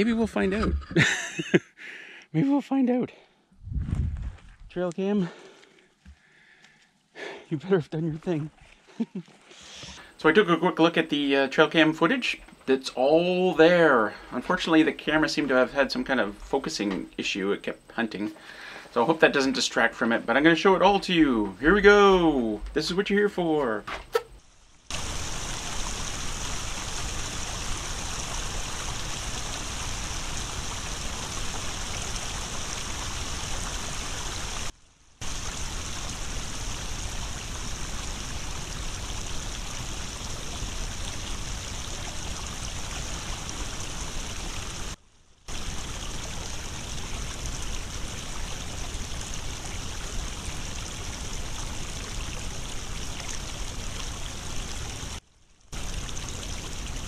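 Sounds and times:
water rushing and splashing: 24.9s - 57.0s.

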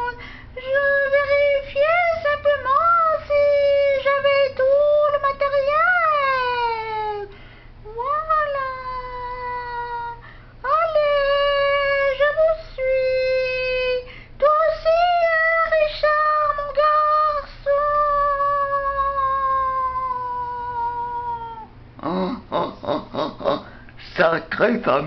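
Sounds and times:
high-pitched voice wailing: 17.7s - 21.7s.

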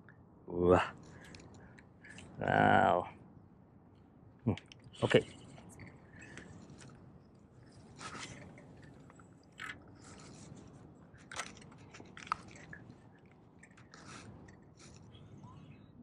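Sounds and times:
line rustling: 5.2s - 15.5s.

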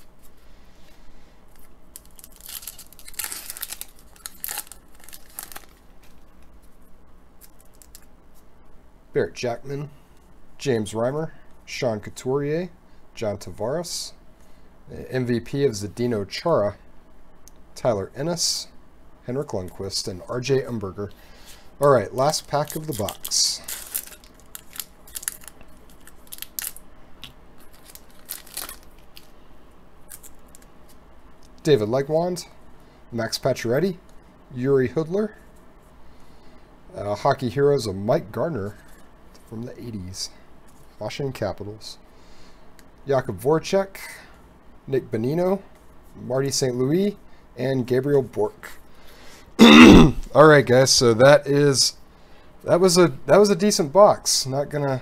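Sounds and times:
foil wrapper tearing and crinkling: 1.6s - 5.8s, 7.4s - 8.1s, 22.2s - 26.8s, 27.6s - 29.3s, 30.1s - 30.7s.

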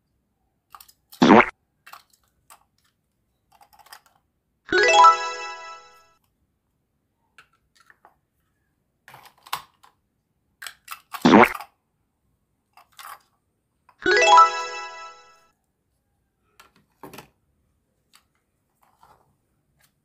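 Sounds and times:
plastic toys clicking and tapping: 0.7s - 1.2s, 1.8s - 4.3s, 7.3s - 8.2s, 9.1s - 11.8s, 12.7s - 14.0s
bright chime: 4.7s - 6.1s, 14.0s - 15.4s.

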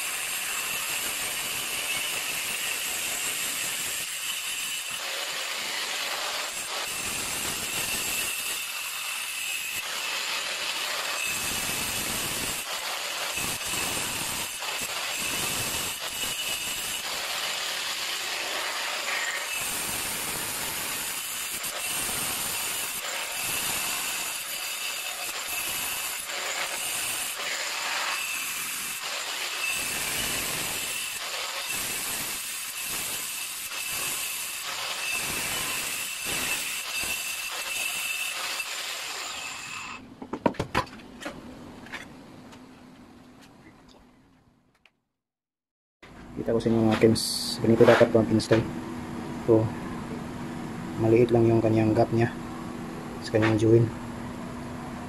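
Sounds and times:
angle grinder cutting tile: 0.0s - 40.0s.

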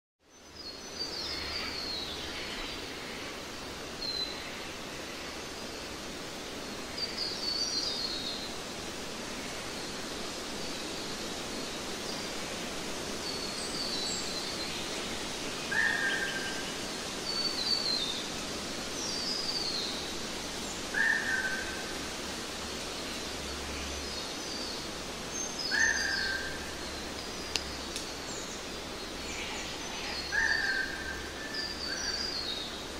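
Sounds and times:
outdoor ambient hiss: 0.2s - 32.9s
small birds chirping: 22.5s - 32.9s.

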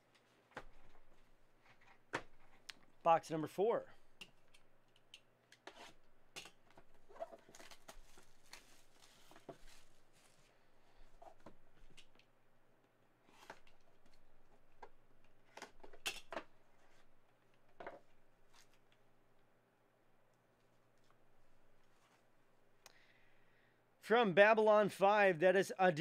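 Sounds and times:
plastic wrap crinkling: 6.0s - 10.4s.

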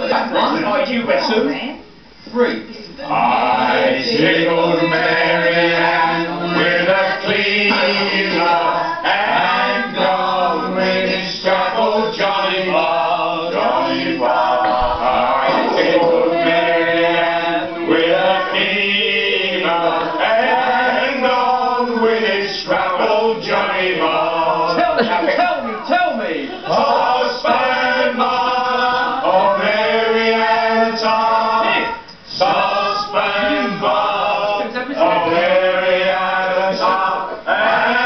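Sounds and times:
voices singing unaccompanied chant: 2.9s - 38.0s.

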